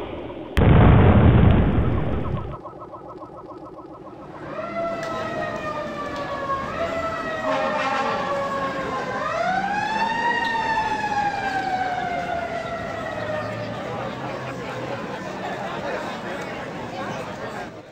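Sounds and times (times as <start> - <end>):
emergency sirens wailing: 0.0 - 16.9.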